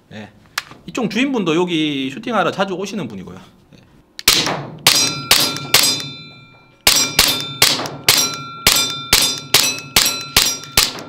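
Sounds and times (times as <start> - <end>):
airsoft pistol shots: 4.2 - 6.2, 6.9 - 11.0
ringing metallic clang: 4.9 - 11.0.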